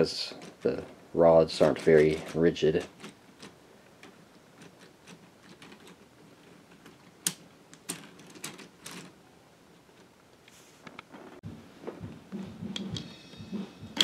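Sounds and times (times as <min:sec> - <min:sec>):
plastic parts clicking and rattling: 0:00.1 - 0:09.2.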